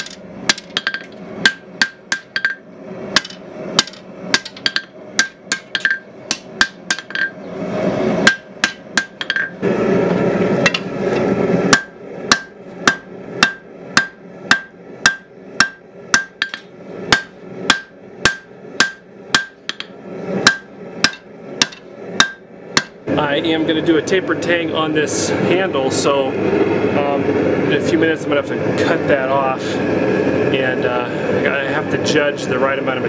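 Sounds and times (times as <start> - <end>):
hammer striking steel on anvil: 0.0 - 2.6, 3.2 - 7.4, 8.2 - 9.6, 10.6 - 10.9, 11.7 - 23.0
steady rushing noise: 0.0 - 14.6.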